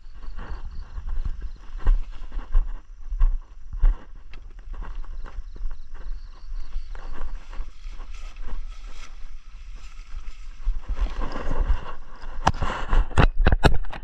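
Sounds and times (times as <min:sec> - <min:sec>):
steady low rumble: 0:00.0 - 0:13.1
jacket rustling: 0:06.7 - 0:12.2.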